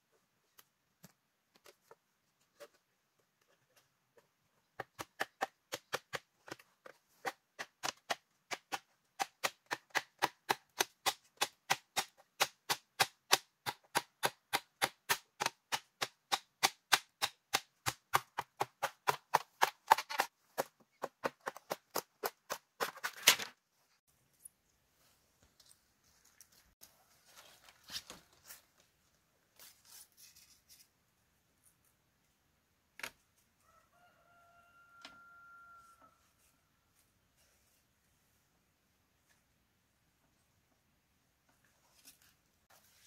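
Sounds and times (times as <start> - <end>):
hand tool striking bamboo: 7.2 - 23.0.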